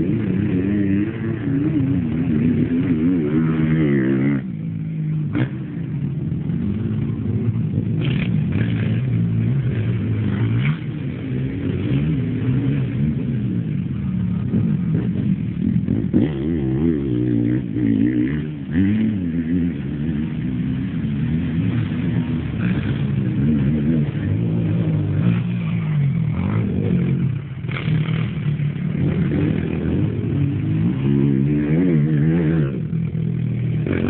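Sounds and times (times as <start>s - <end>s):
racing quad engines revving: 0.0s - 34.0s.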